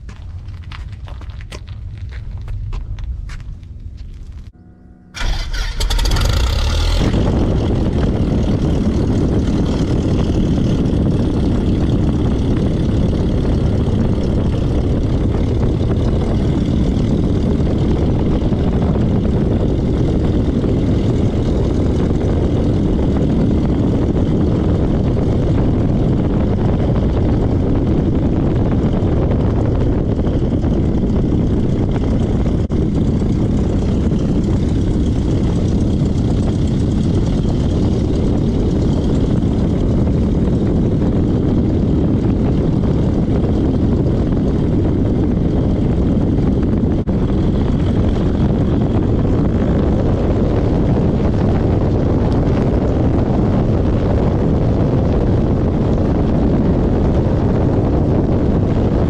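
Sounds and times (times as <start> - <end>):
tyre rumble on asphalt: 0.0 - 4.5
propeller plane engine running: 0.0 - 59.0
wind: 0.0 - 59.0.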